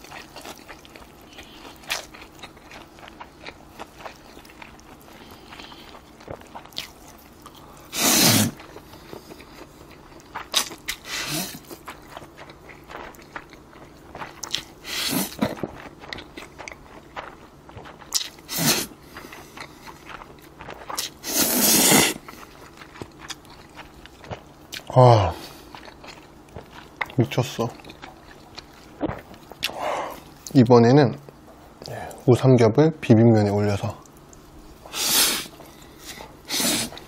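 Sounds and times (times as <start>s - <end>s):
chewing: 0.0s - 30.6s, 33.8s - 37.0s
man slurping noodles: 7.9s - 8.6s, 11.0s - 11.6s, 14.8s - 15.4s, 18.5s - 18.9s, 21.2s - 22.2s, 34.9s - 35.5s, 36.4s - 37.0s.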